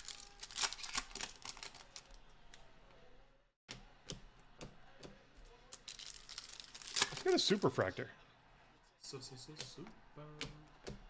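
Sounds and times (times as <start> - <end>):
foil pack crinkling: 0.0 - 2.2, 5.7 - 7.5.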